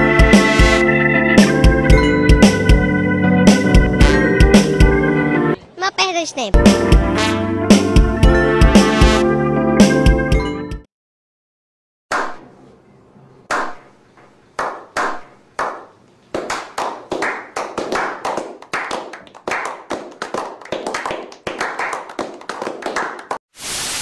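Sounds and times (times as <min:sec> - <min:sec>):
group clapping: 0:14.6 - 0:23.4
tv static hiss: 0:23.6 - 0:24.0.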